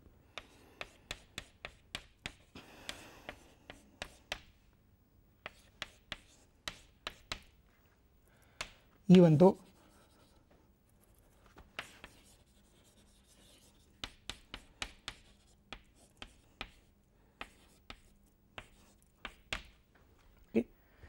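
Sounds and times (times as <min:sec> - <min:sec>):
chalk taps and strokes: 0:00.3 - 0:04.6, 0:05.4 - 0:07.8, 0:08.4 - 0:19.9
chalk scratching on blackboard: 0:00.4 - 0:04.6, 0:05.4 - 0:07.6, 0:09.5 - 0:19.7.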